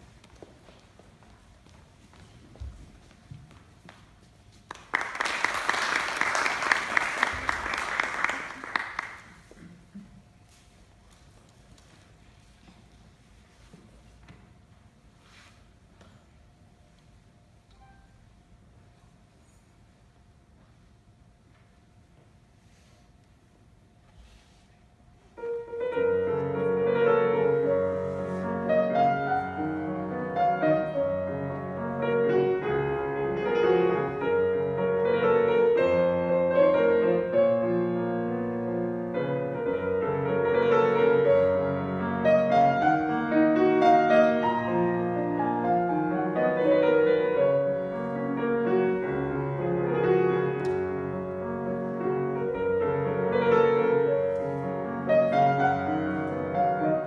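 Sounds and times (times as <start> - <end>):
classical piano piece: 25.2 - 57.0.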